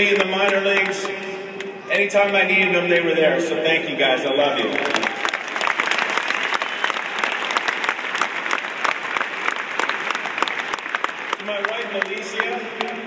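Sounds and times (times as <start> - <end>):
stadium crowd applauding: 0.0 - 3.2, 3.8 - 13.0.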